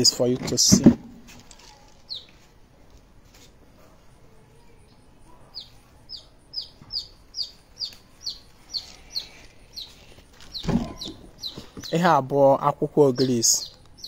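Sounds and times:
bird chirping: 1.5 - 2.5, 4.1 - 14.0.

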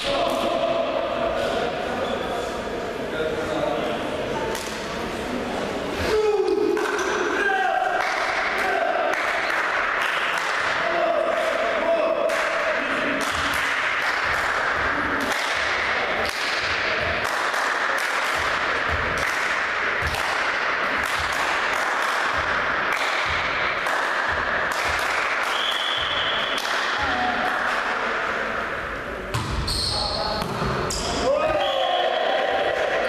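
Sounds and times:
crowd din in a gymnasium: 0.0 - 33.0
sharp claps or bangs: 6.6 - 28.2
short high whistle: 25.5 - 26.6.

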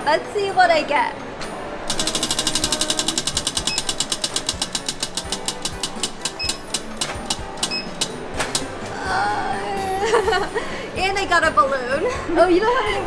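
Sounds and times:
prize wheel clicking: 1.9 - 8.7.

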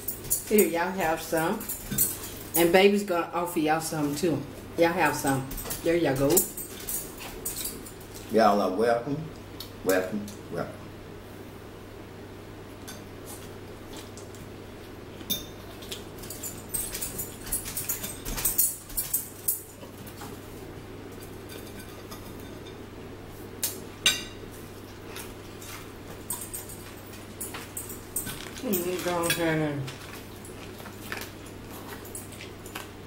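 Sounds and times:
forks clinking on plates: 0.0 - 2.7, 5.0 - 8.2, 15.2 - 20.4, 21.2 - 22.8, 23.6 - 24.4, 25.0 - 32.9
steady low hum: 0.0 - 33.0.

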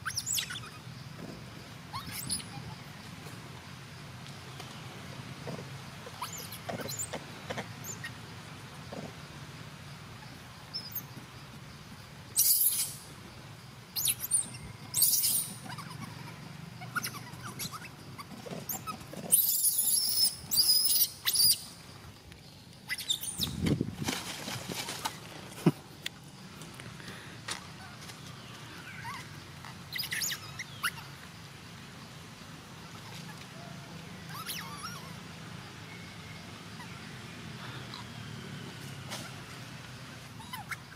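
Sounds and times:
young monkeys squealing: 0.0 - 0.9, 1.9 - 2.9, 6.0 - 7.1, 7.8 - 8.2, 12.4 - 13.1, 14.0 - 21.8, 22.8 - 23.6, 28.7 - 31.2, 32.8 - 35.3, 40.3 - 40.9.

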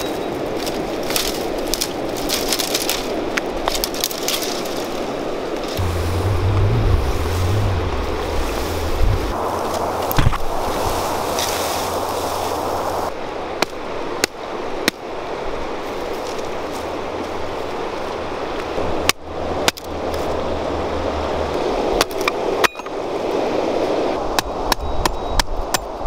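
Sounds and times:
wind rumbling on microphone: 5.0 - 26.0
hatchet chopping branches: 19.0 - 20.4, 24.2 - 26.0.

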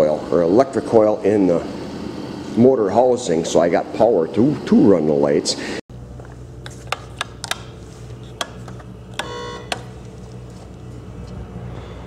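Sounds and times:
low electrical hum: 0.0 - 12.0
short electronic beep: 9.2 - 9.7.

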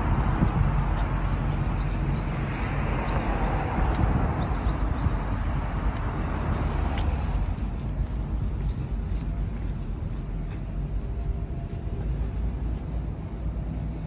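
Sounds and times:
road traffic rumble: 0.0 - 14.0
bird chirping: 1.2 - 3.6
light ticks: 6.9 - 9.3.

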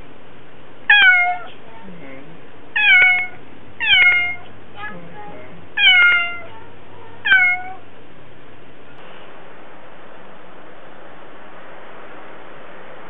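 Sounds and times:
cat meowing loudly: 0.9 - 1.5, 2.8 - 4.5, 5.8 - 6.5, 7.2 - 7.8.

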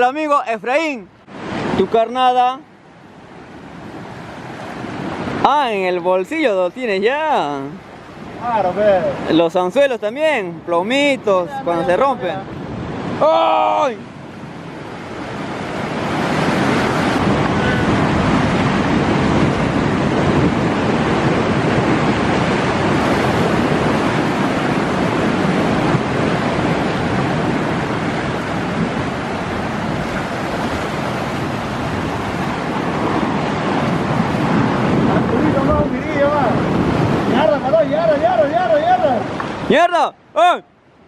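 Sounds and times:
surf breaking against rocks: 11.9 - 40.0.

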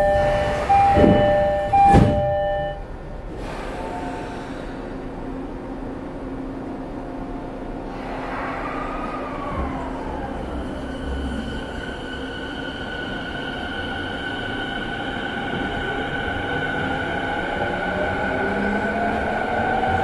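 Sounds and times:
high ringing tone: 0.0 - 2.8
train wheels rumbling on rail: 0.0 - 20.0.

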